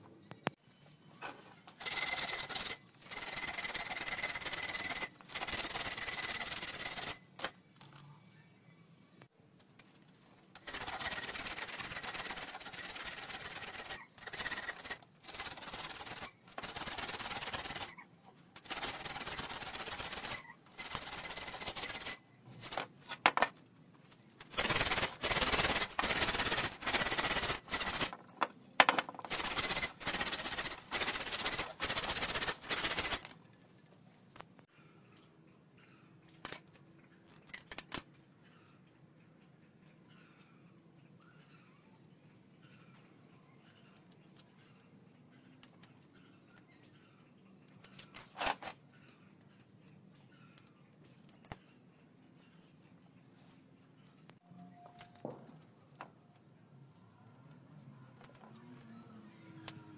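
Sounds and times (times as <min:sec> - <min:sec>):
faint high squeal: 0:54.4 - 0:55.3.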